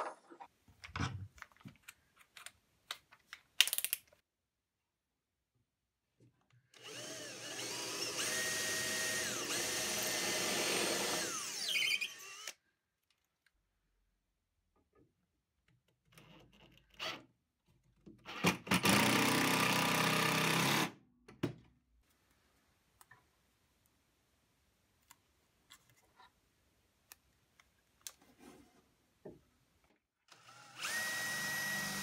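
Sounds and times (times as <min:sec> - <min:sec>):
cordless drill boring into wood: 0:06.8 - 0:12.6, 0:18.7 - 0:20.9, 0:30.3 - 0:32.0.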